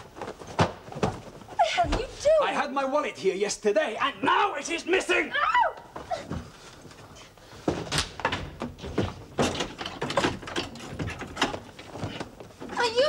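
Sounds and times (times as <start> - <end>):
irregular knocks and thuds: 7.6 - 13.0
wardrobe doors and contents yanked: 7.7 - 13.0.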